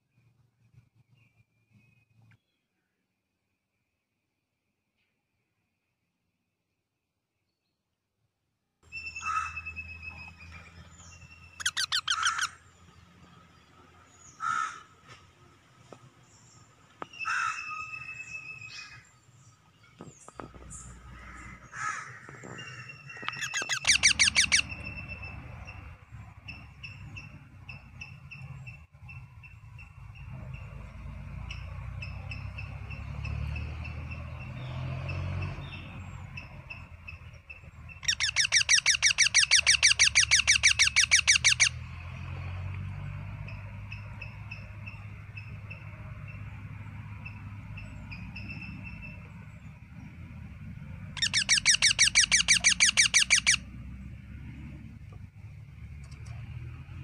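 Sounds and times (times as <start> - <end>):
parakeet harsh rapid calls: 11.3 - 12.8, 17.2 - 18.1, 21.1 - 25.8, 38.0 - 41.8, 51.1 - 53.7.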